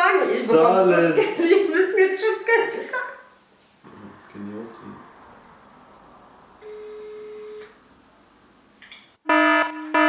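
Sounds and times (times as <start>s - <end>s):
harsh buzzer pulses: 6.6s - 7.7s, 9.2s - 10.0s
telephone ringback tone: 6.6s - 7.8s.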